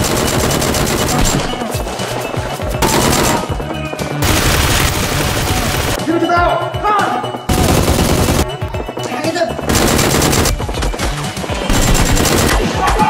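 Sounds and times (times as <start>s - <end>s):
automatic gunfire bursts: 0.0s - 1.6s, 2.8s - 6.0s, 7.5s - 8.6s, 9.7s - 13.0s
background music: 0.0s - 13.0s.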